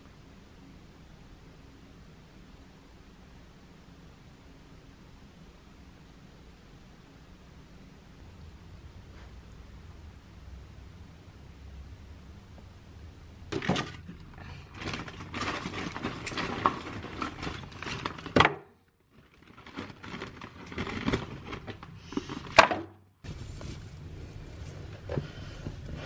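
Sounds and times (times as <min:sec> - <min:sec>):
paper crinkling: 0:13.6 - 0:22.6, 0:23.2 - 0:26.0.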